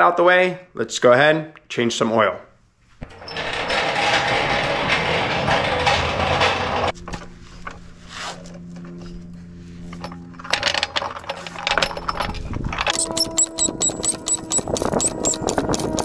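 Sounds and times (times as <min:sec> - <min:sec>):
floor jack rolling on concrete: 0:02.9 - 0:08.6
metal clicks and rattles: 0:03.0 - 0:07.8, 0:09.9 - 0:16.0.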